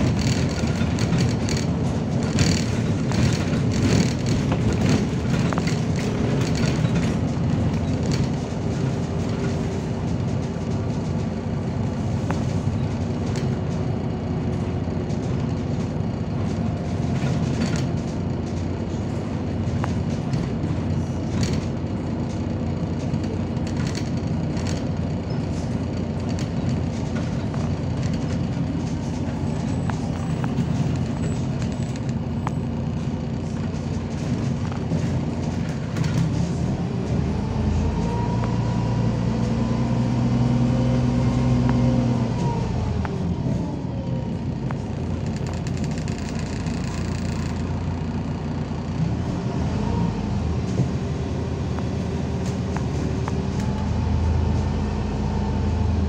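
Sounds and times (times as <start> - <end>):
body rattles and clicks: 0.0 - 37.2, 44.7 - 47.8
bus engine and tyres drone: 0.0 - 56.0.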